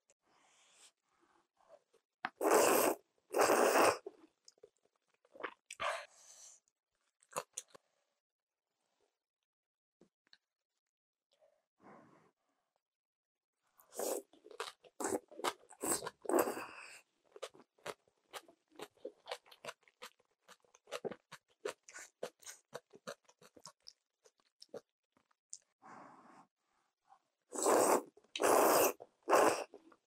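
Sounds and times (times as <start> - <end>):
crunchy chewing: 17.3 - 25.7.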